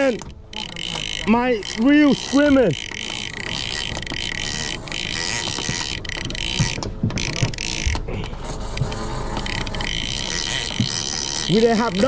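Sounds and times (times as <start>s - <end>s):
fishing reel drag whining: 0.0s - 8.1s, 8.9s - 12.0s
reel clicker clicks: 0.0s - 8.1s.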